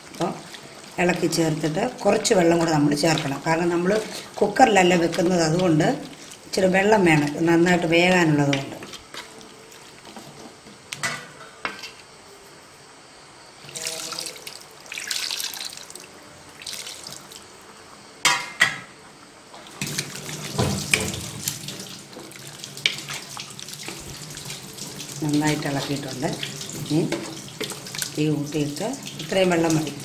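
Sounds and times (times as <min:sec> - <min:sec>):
water splashing into a metal pot: 0:00.0 - 0:09.4, 0:13.6 - 0:17.5, 0:19.7 - 0:30.0.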